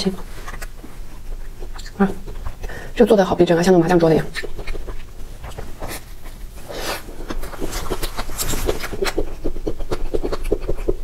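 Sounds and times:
wet lip smacks and chewing: 0:00.2 - 0:03.0, 0:04.1 - 0:11.0.

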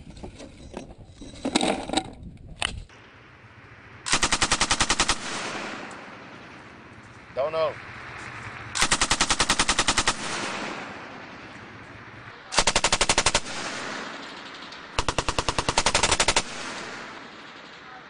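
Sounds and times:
machine gun firing bursts: 0:04.0 - 0:18.0.

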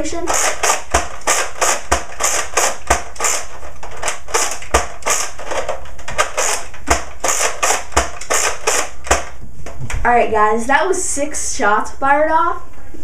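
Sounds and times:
toy blaster plastic clacks: 0:00.3 - 0:09.4.

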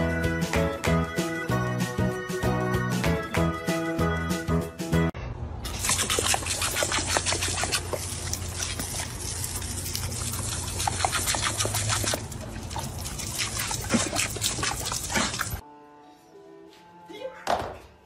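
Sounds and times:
hose water spraying and splattering: 0:05.7 - 0:15.6.

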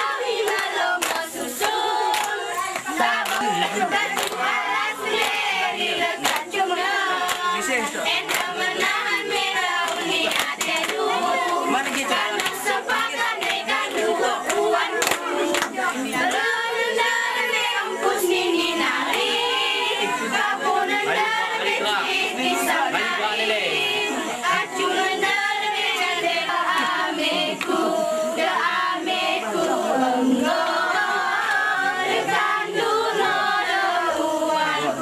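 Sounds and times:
women chanting in unison: 0:00.0 - 0:35.0
hand claps and body slaps: 0:00.4 - 0:05.5, 0:06.2 - 0:06.6, 0:07.2 - 0:15.9.

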